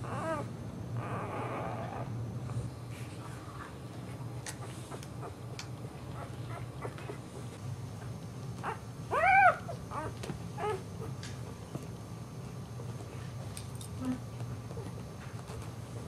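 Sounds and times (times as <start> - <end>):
puppy squealing and whimpering: 0.0 - 2.1, 8.6 - 11.1.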